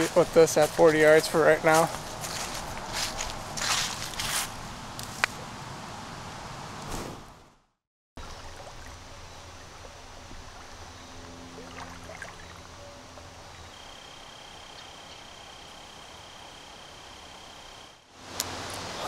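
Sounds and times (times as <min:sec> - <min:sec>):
running water: 0:08.2 - 0:13.5
insects: 0:08.2 - 0:19.0
low hum: 0:08.2 - 0:19.0
high insect tone: 0:12.5 - 0:18.1.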